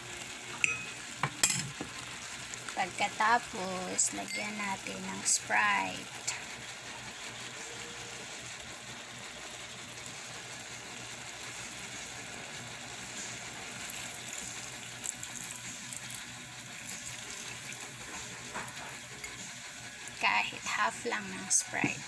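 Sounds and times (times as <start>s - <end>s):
soda fizzing and foaming: 1.3s - 22.0s
soda pouring into a pot: 8.3s - 20.4s.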